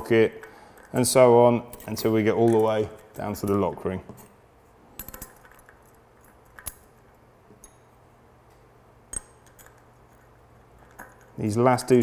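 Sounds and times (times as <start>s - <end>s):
metal sprockets clinking: 0.0s - 7.9s, 9.1s - 12.0s.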